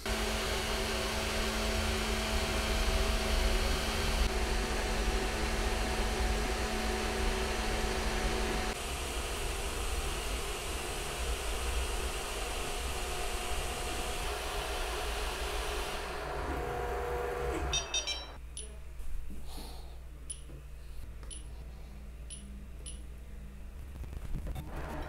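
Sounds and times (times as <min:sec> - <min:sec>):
stepper motor tones: 0:00.0 - 0:18.4
cooling fans whirring: 0:00.0 - 0:25.0
short high beeps: 0:17.7 - 0:18.4.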